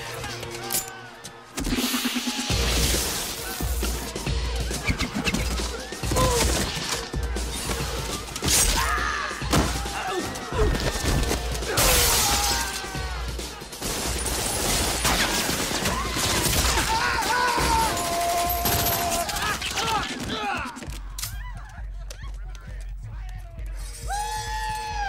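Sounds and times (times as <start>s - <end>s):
people yelling and screaming: 0.0s - 22.8s, 23.8s - 25.0s.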